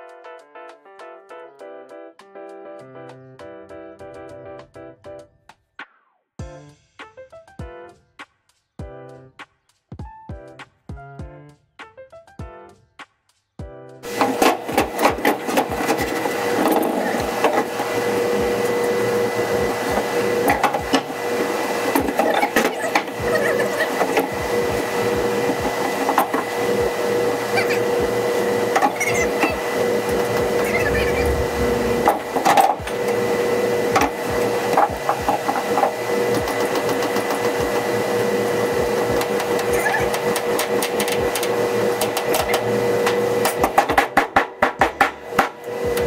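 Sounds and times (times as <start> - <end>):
machine hum: 26.1 - 33.8.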